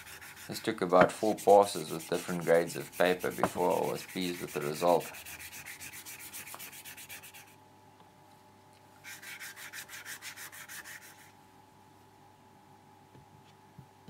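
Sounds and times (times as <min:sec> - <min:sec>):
sandpaper rasping on metal: 0:00.0 - 0:07.6, 0:09.0 - 0:11.3.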